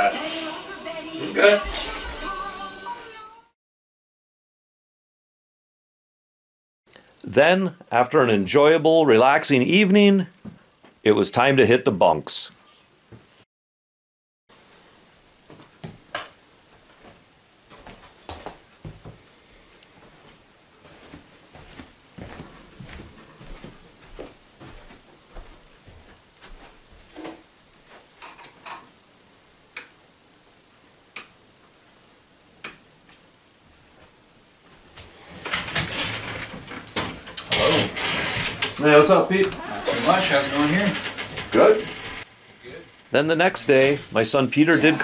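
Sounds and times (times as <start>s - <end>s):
clattering and rustling: 34.9s - 44.2s.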